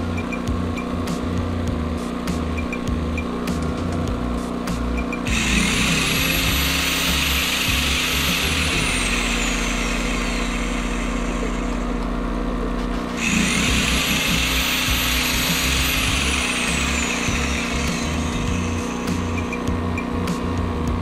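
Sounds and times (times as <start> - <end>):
generator engine running: 0.0 - 21.0
circular saw motor whine: 5.1 - 20.6.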